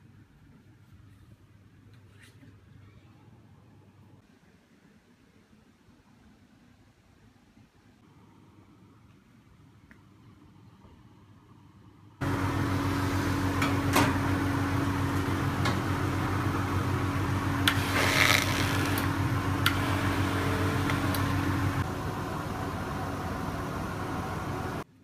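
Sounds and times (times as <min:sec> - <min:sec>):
machine motor hum: 0:12.2 - 0:24.8.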